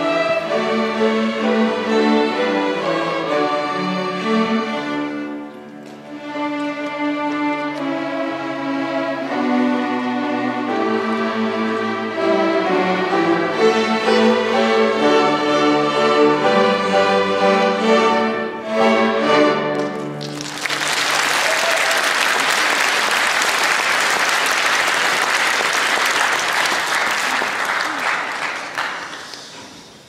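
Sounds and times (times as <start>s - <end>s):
string orchestra playing: 0.0s - 21.4s
audience applause: 19.8s - 30.0s.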